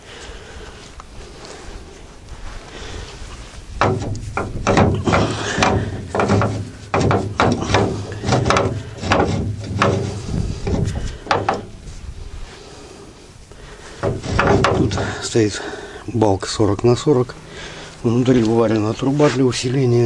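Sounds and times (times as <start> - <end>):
metal knocking and rubbing: 3.7 - 12.0, 14.0 - 15.4.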